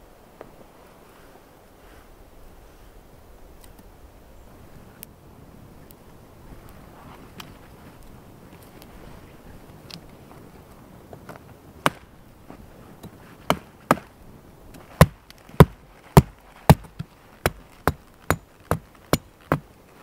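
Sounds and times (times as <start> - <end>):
hatchet chopping wood: 11.8 - 12.1, 13.0 - 14.1, 14.9 - 19.7.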